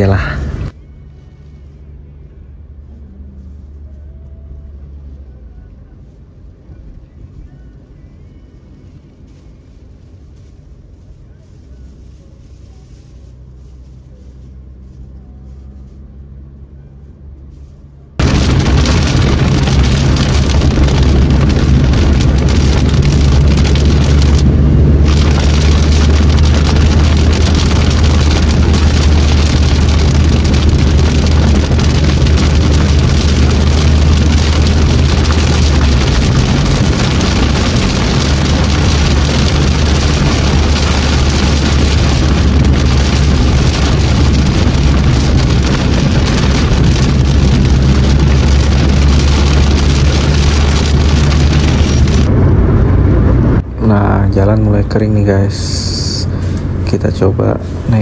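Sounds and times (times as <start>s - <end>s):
car interior hum: 0.0s - 58.0s
tyre and road rumble: 0.0s - 58.0s
heavy rain drumming on car roof: 18.2s - 52.3s.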